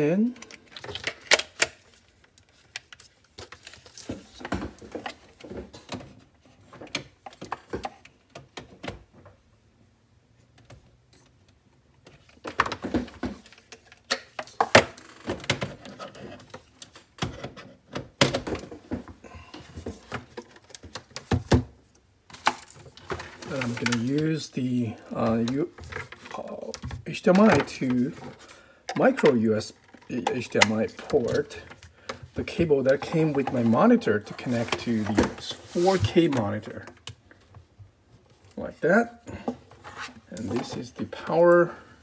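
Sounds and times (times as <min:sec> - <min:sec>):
plastic plugs clicking and rattling: 0:00.4 - 0:03.8.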